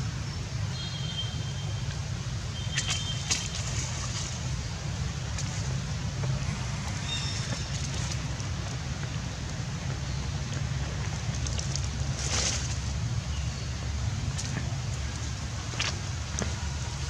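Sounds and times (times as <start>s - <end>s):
wind rumble on microphone: 3.6s - 17.0s.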